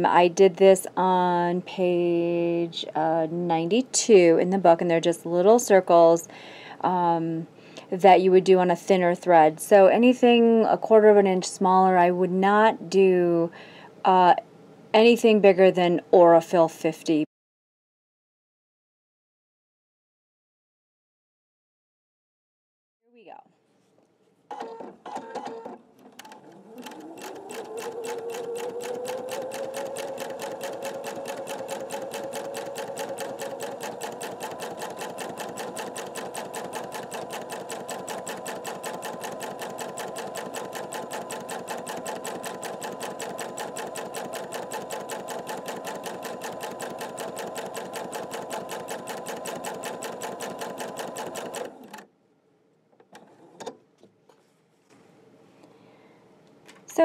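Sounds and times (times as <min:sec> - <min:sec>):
sewing machine stitching: 0:24.5 - 0:52.1.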